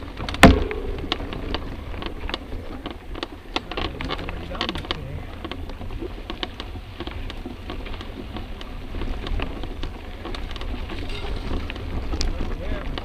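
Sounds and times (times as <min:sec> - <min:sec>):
bike clicking and rattling: 0:00.0 - 0:13.0
wind rumble on microphone: 0:00.0 - 0:13.0.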